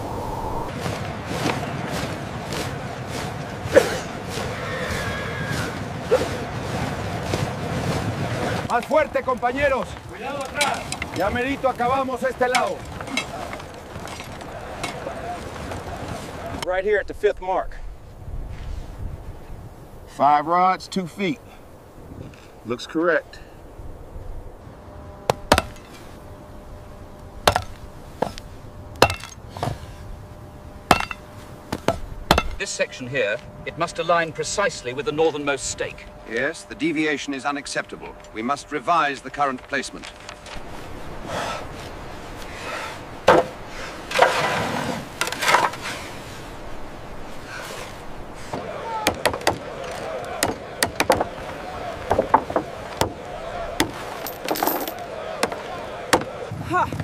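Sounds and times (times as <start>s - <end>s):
hammer striking wooden stakes: 25.2s - 26.0s, 27.4s - 28.4s, 29.0s - 29.8s, 30.9s - 32.8s, 43.3s - 44.6s, 48.5s - 53.2s, 53.8s - 56.3s.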